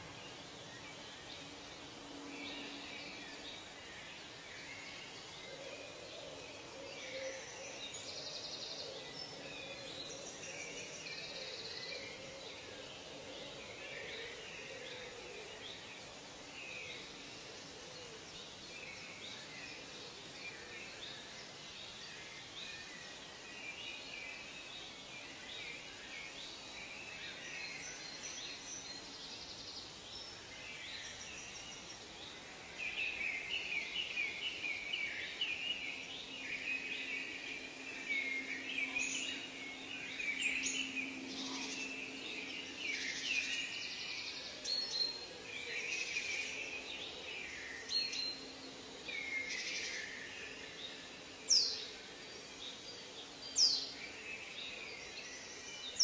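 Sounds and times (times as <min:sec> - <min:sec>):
birds chirping and calling: 0:32.7 - 0:51.9.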